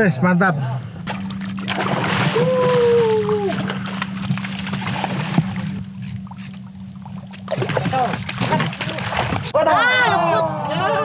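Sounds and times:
boat engine hum: 0.0s - 11.0s
fish splashing at the surface: 1.1s - 5.8s, 7.3s - 9.6s.

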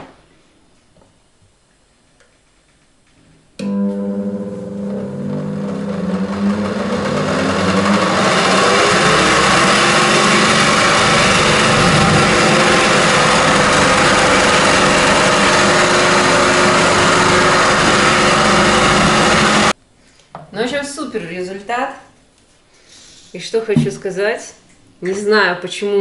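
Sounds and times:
juicer motor whirring: 3.6s - 19.8s.

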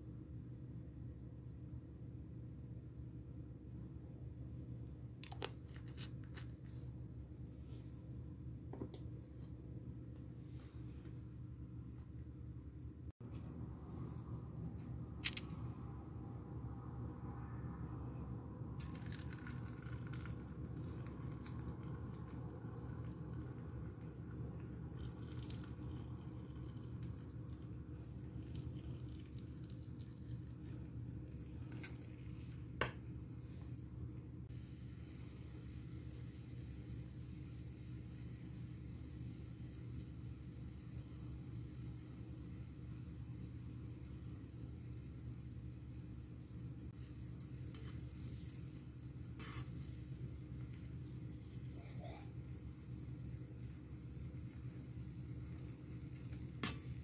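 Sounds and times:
low steady hum: 0.0s - 57.0s
oil sizzling in pan: 34.5s - 57.0s.

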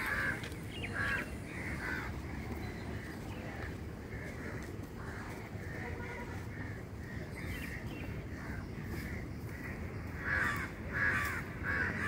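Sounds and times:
birds harsh repeated calls: 0.0s - 12.0s.

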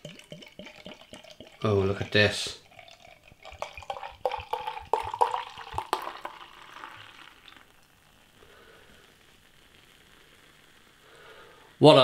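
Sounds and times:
beer glugging into a glass: 0.0s - 8.4s
foam fizzing: 0.0s - 12.0s.

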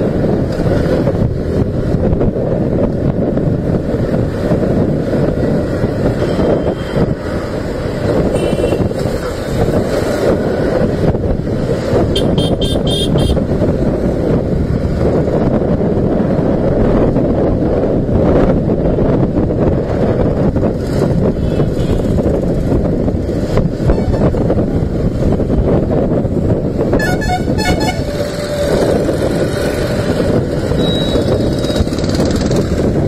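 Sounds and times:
wind rush on microphone: 0.0s - 33.0s
horn honks: 6.2s - 7.0s, 8.3s - 8.9s, 12.2s - 13.4s, 27.0s - 28.5s
motorcycle engine: 20.1s - 33.0s.

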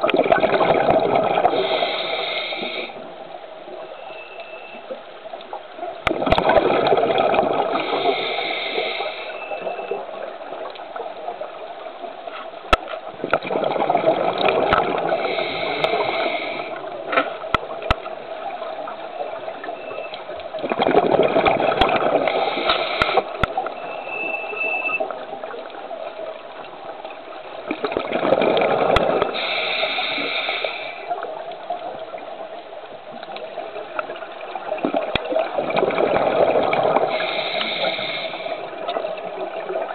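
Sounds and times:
exhaled bubbles rushing: 0.0s - 1.8s, 6.0s - 8.2s, 13.1s - 16.2s, 20.5s - 23.8s, 27.6s - 29.4s, 33.3s - 37.4s
regulator steady hiss: 1.4s - 4.0s, 7.8s - 10.6s, 14.9s - 20.4s, 22.0s - 23.8s, 29.0s - 34.5s, 36.8s - 39.9s.

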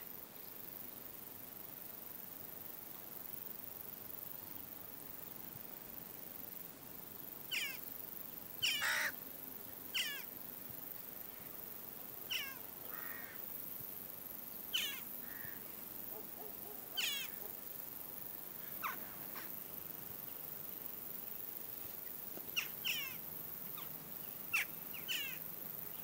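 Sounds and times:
jackdaws calling: 7.5s - 7.8s, 8.6s - 9.2s, 9.9s - 10.3s, 12.3s - 13.4s, 14.7s - 15.6s, 16.2s - 17.6s, 18.7s - 19.5s, 22.5s - 25.4s.

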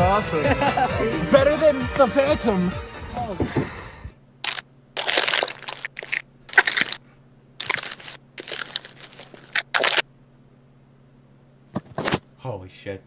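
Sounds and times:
gift wrapping being torn open: 4.4s - 7.0s, 7.6s - 10.0s.

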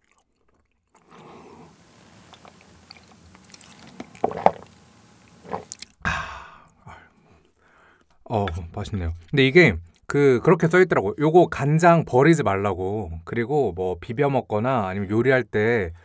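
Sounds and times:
man gulping water: 0.0s - 6.8s
breathy exhale: 1.1s - 2.5s, 6.0s - 8.1s.

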